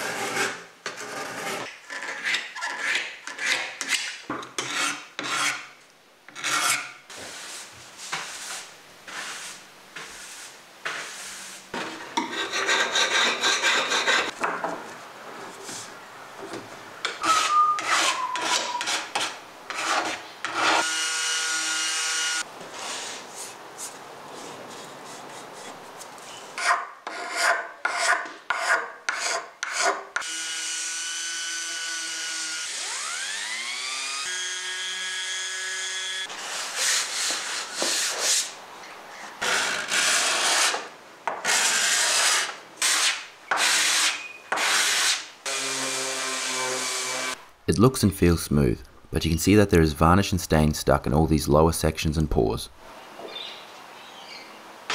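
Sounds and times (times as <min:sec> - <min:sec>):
hand tool scraping hardwood: 0:00.0 - 0:05.7, 0:06.3 - 0:14.4, 0:17.0 - 0:20.9, 0:22.7 - 0:30.3, 0:36.3 - 0:38.6.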